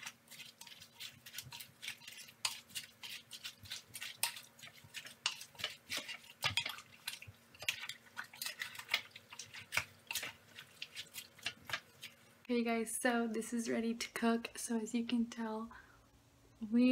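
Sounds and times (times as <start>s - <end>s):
wooden spoon stirring in a pot: 0.0s - 12.4s.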